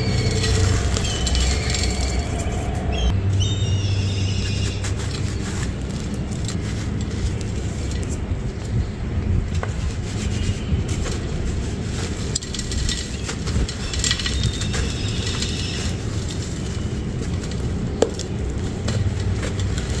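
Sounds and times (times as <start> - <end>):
gritty crunching and rubbing: 0.0 - 3.2, 3.8 - 20.0
low rumble: 0.0 - 9.9.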